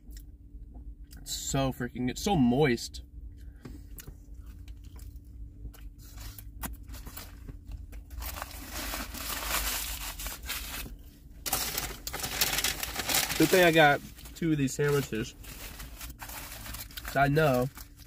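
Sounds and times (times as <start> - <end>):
rustling and crinkling: 4.5 - 18.0.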